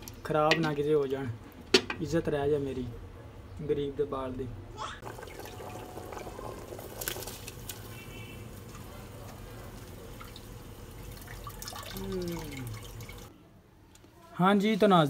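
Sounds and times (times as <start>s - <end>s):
pot boiling and bubbling: 0.0s - 1.9s, 5.0s - 13.3s.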